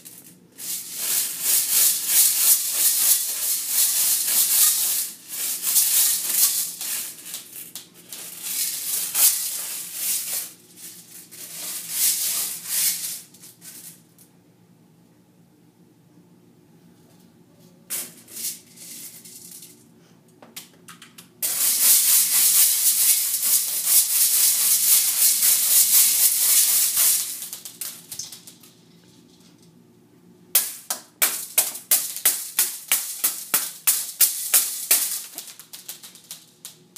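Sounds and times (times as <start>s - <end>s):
plastic beads rattling in metal colander: 0.0s - 14.0s, 17.9s - 19.8s, 21.4s - 29.6s, 30.6s - 36.9s.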